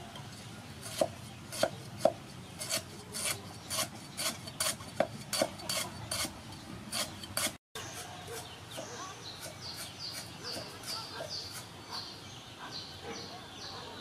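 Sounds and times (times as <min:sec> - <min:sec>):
cleaver chopping on wooden block: 0:00.8 - 0:06.3.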